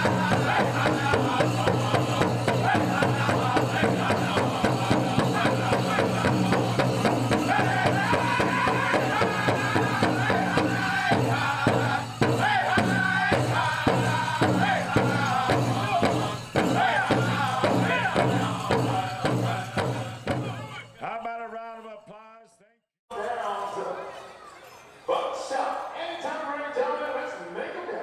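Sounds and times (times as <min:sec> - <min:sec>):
big drum beats: 0:00.0 - 0:20.8
singers' voices in unison: 0:00.0 - 0:20.9.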